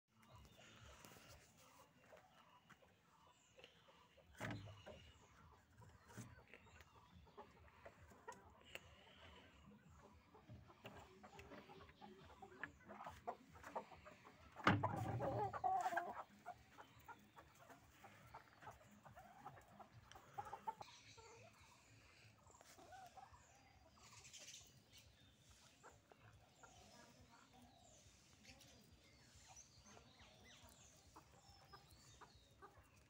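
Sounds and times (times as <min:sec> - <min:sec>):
chickens clucking: 0:00.1 - 0:33.0
rooster: 0:14.8 - 0:16.6.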